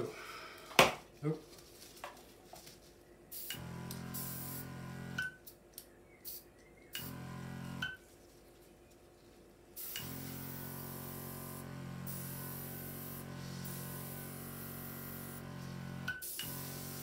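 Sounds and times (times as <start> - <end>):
compressed air hissing: 9.8 - 17.0.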